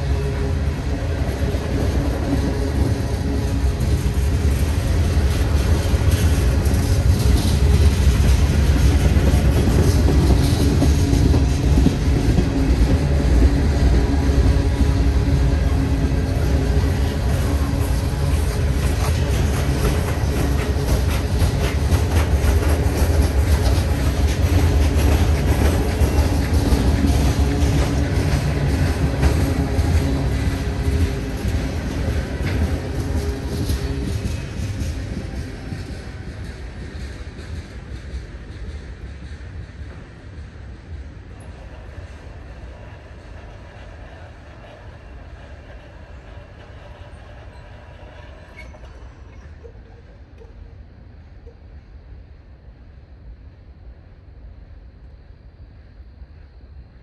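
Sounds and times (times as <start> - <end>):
wheels clicking on rails: 0.0 - 50.8
freight train rumbling by: 0.0 - 57.0.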